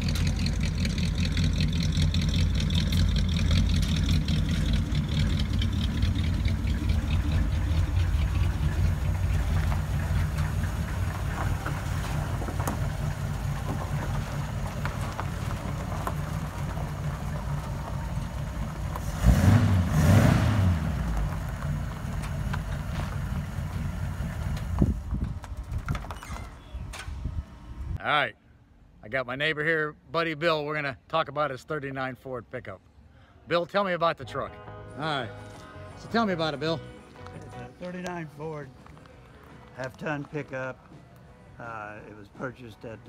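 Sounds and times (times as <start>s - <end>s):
engine idling: 0.0s - 25.9s.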